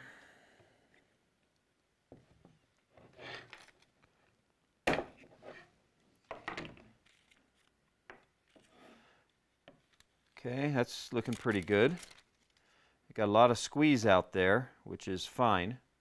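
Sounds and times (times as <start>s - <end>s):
plastic film rustling: 11.0s - 12.7s.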